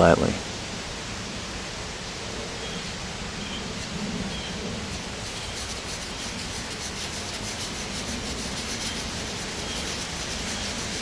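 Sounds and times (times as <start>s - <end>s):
knife scraping on whetstone: 4.9s - 11.0s.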